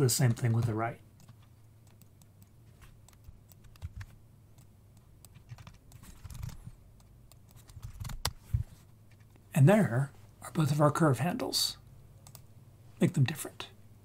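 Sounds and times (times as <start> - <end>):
computer mouse and keyboard clicks: 0.3 - 9.4.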